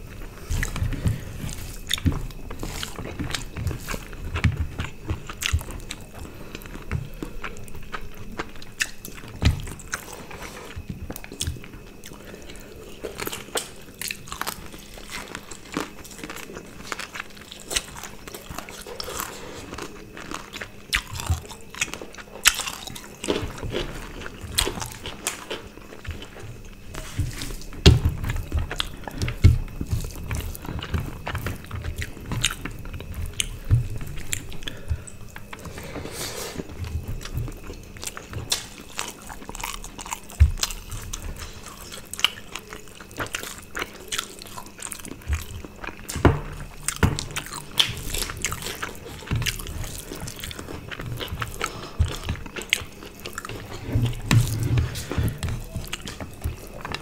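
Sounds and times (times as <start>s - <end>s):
wet chewing and lip smacking: 36.6s - 57.0s.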